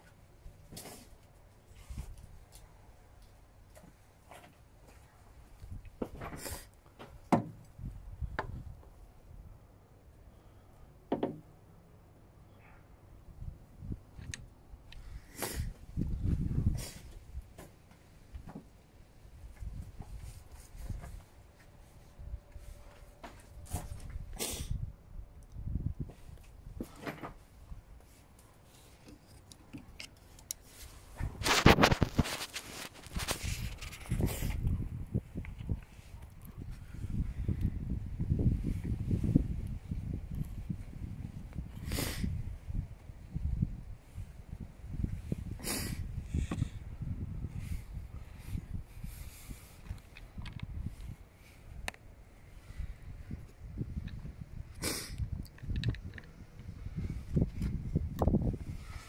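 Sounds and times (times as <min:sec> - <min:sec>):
rustling handling noise: 0:26.1 - 0:34.6
clothing rubbing on microphone: 0:30.6 - 0:34.8
faint clicks and knocks: 0:55.5 - 0:56.7.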